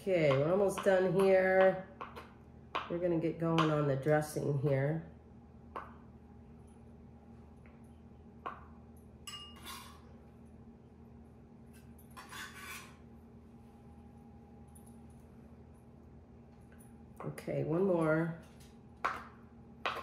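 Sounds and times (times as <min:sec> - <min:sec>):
knife clattering scrapes: 0:09.3 - 0:10.1, 0:11.8 - 0:13.0.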